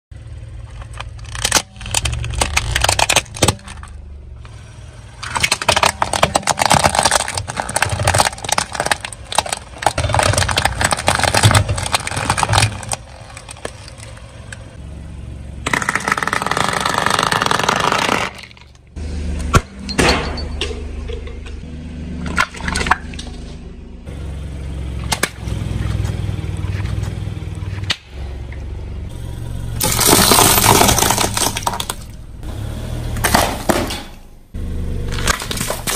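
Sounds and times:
low car engine rumble: 0.1 - 35.9
plastic crushed under car tyre: 0.6 - 4.0, 5.2 - 14.6, 15.7 - 18.9, 29.8 - 32.2, 35.1 - 35.9.

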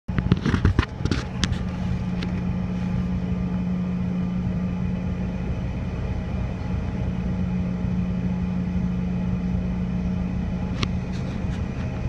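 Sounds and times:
sharp clicks and knocks: 0.1 - 2.5
jet engines humming: 0.1 - 12.0.

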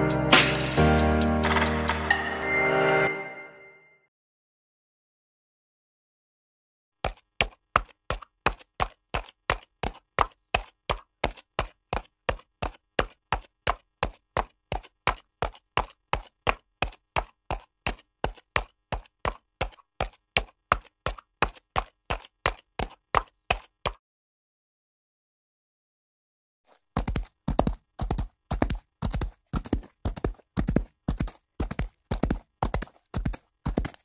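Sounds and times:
horse hoofbeats trotting: 7.0 - 24.0, 26.7 - 34.0.

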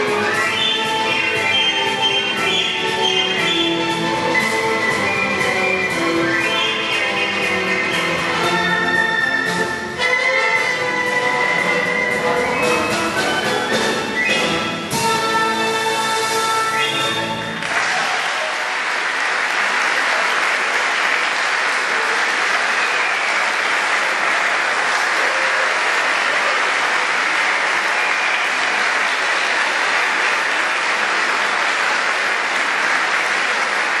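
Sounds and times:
audience applauding: 0.0 - 9.7, 16.7 - 34.0.

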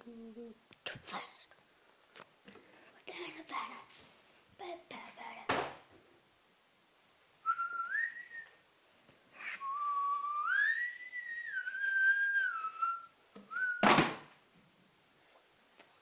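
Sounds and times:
person whistling a tune: 7.5 - 8.5, 9.5 - 13.8
sharp knock: 13.8 - 14.3.

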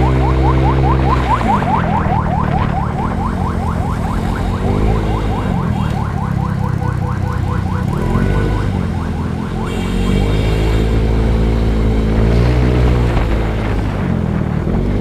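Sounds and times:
siren yelping: 0.0 - 10.6
motorcycle engine revving: 0.0 - 15.0.

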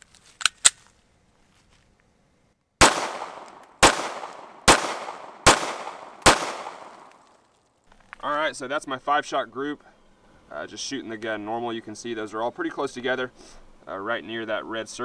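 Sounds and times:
pistol shots echoing: 2.8 - 7.2.

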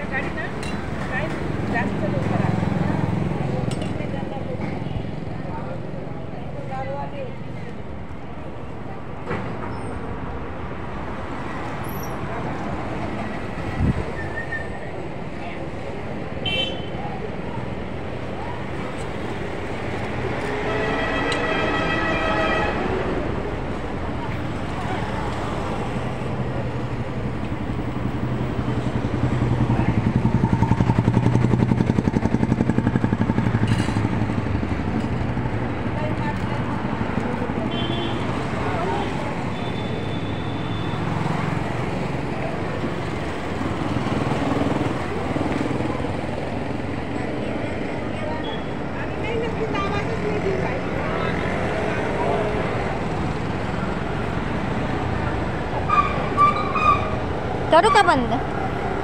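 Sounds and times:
vehicle engines running: 0.0 - 14.2, 22.8 - 59.0
street traffic noise: 0.0 - 59.0
long vehicle horn: 16.4 - 16.9, 20.6 - 23.0, 37.7 - 38.3, 55.8 - 57.1.

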